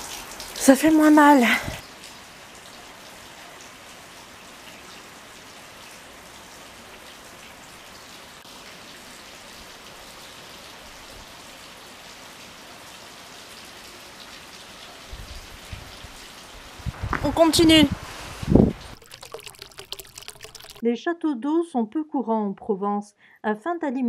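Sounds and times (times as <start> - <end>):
steady rain: 0.0 - 19.0.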